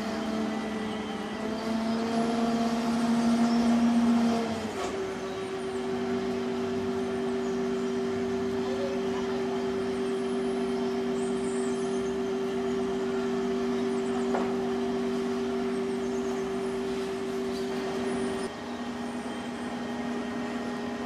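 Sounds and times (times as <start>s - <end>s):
crane engine humming: 0.0s - 21.0s.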